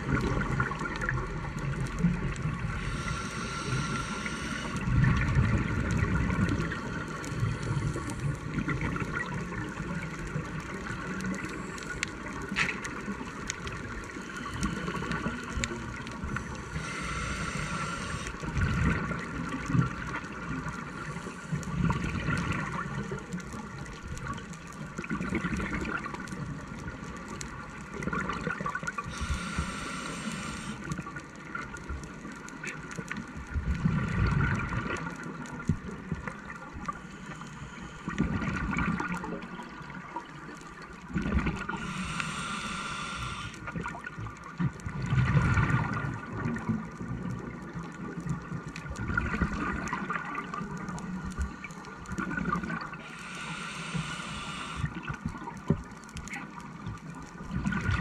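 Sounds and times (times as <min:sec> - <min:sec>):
exhaled bubbles gurgling: 0:00.0 - 0:32.1, 0:32.7 - 0:58.0
faint steady hum: 0:00.0 - 0:58.0
hissing regulator inhale: 0:02.6 - 0:05.2, 0:14.1 - 0:15.6, 0:16.3 - 0:18.6, 0:29.0 - 0:31.0, 0:36.9 - 0:38.5, 0:41.6 - 0:43.8, 0:52.9 - 0:55.2.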